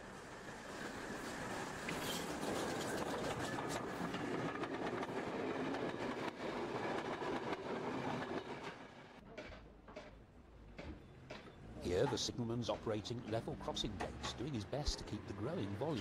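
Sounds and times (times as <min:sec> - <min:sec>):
steam train passing: 0:00.0 - 0:09.2
wheels clattering over rail joints: 0:09.4 - 0:16.0.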